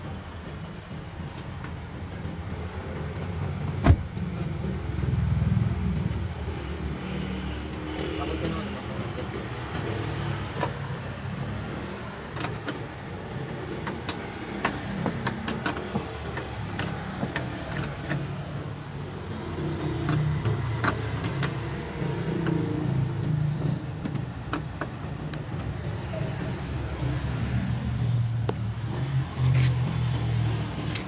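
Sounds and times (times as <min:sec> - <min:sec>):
tools clicking and knocking: 0:11.6 - 0:18.7, 0:19.5 - 0:25.8.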